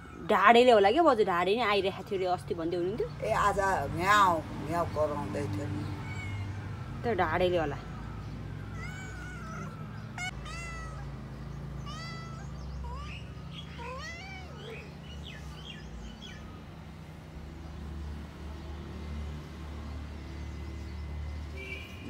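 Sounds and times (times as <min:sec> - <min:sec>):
cat meowing: 0:05.9 - 0:06.8, 0:08.6 - 0:15.0.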